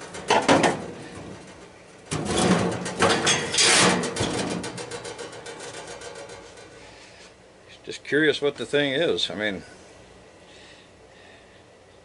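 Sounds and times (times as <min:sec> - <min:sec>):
sheet metal scraping and rattling: 0:00.0 - 0:06.9.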